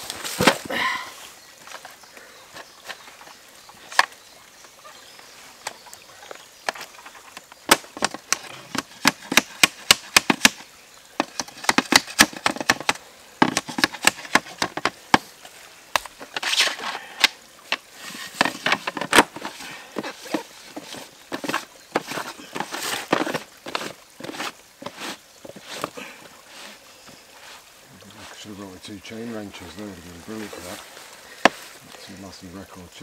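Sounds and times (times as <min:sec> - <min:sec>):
sharp plastic clicks and knocks: 0:07.7 - 0:10.6, 0:11.2 - 0:15.2
scraping rustle: 0:11.2 - 0:28.6.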